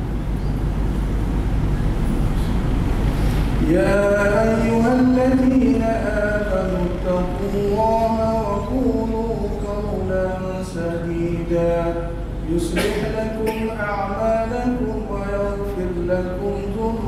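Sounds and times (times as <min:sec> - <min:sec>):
steady low rumble: 0:00.0 - 0:17.0
man chanting: 0:03.6 - 0:17.0.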